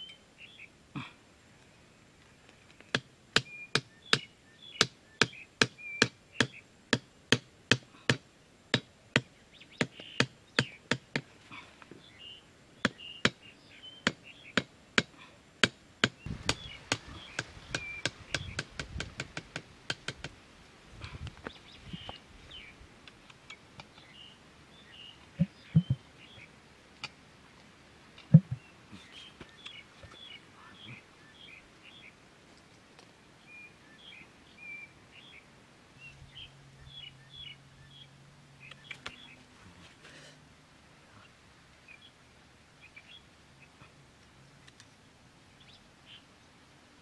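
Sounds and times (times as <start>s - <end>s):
birds chirping: 0.0s - 0.8s, 1.6s - 15.4s, 16.0s - 20.3s, 21.0s - 27.6s, 28.2s - 32.2s, 33.4s - 40.2s, 41.0s - 44.0s, 44.6s - 46.6s
hatchet knocking wooden stakes: 2.9s - 11.3s, 14.0s - 20.4s.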